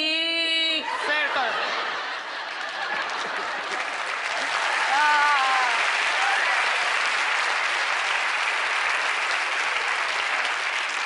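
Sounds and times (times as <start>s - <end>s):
audience applauding: 1.1s - 11.0s
whoops: 4.7s - 6.6s.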